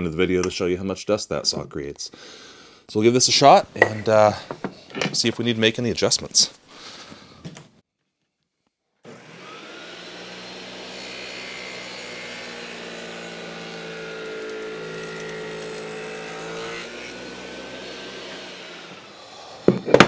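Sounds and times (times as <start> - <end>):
table saw humming: 9.1 - 20.0.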